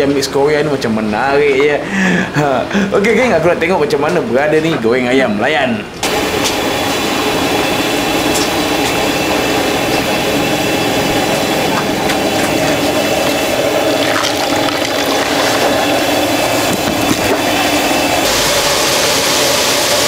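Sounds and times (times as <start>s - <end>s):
deep-fryer sizzling: 6.0s - 20.0s.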